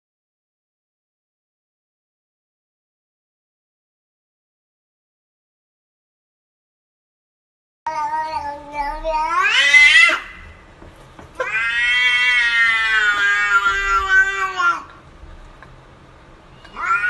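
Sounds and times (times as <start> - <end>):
cat meowing: 7.9 - 10.5, 11.4 - 15.0, 16.5 - 17.0.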